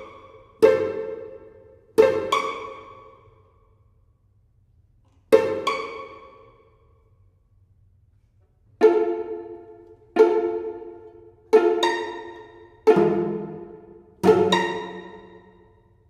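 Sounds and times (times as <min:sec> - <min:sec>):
plucked string chords: 0:08.8 - 0:15.6.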